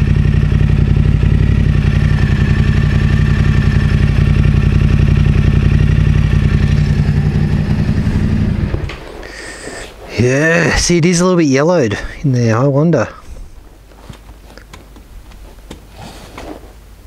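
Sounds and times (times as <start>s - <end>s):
motorcycle engine idling: 0.0s - 9.6s.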